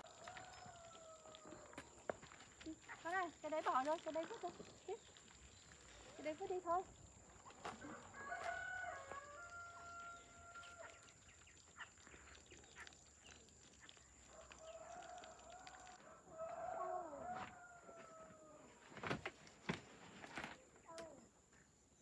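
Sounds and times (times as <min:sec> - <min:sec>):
rooster crowing faintly: 0:00.0 - 0:01.9, 0:07.7 - 0:11.1, 0:14.3 - 0:18.8.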